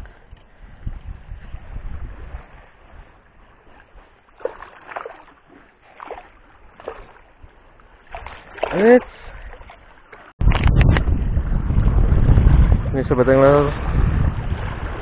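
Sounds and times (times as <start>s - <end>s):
wind rumble on microphone: 0.0s - 4.4s, 9.3s - 15.0s
short splashes in water: 2.2s - 10.4s.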